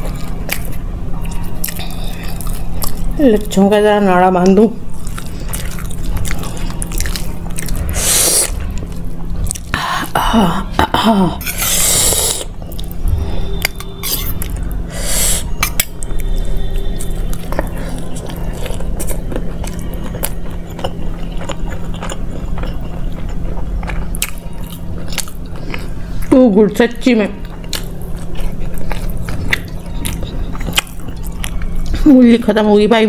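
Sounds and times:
steady low hum: 0.0 - 33.0
wet chewing clicks and smacks: 4.3 - 7.9, 17.0 - 26.4, 27.4 - 32.0.

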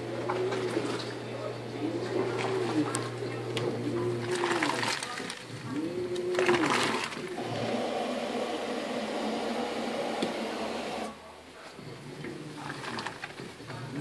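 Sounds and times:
water churning: 0.0 - 11.3, 11.9 - 14.0
washing machine agitating: 0.0 - 14.0.

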